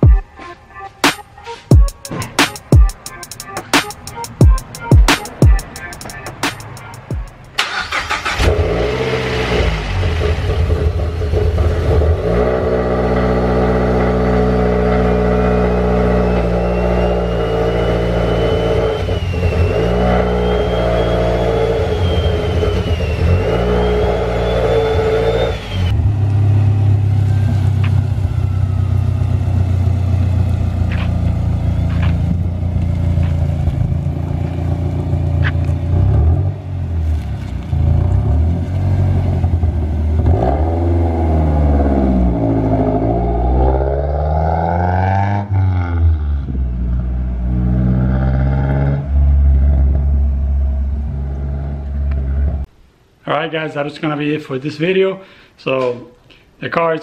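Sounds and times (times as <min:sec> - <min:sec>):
car engine revving: 0:03.9 - 0:52.7
turbo whistle: 0:15.7 - 0:26.0.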